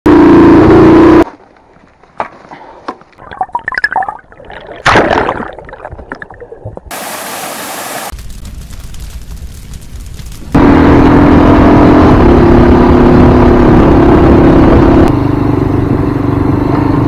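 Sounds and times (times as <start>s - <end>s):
dirt bike engine running: 0.1s - 1.4s, 8.2s - 17.0s
underwater gurgling: 3.2s - 7.0s
rush of water: 3.7s - 8.2s.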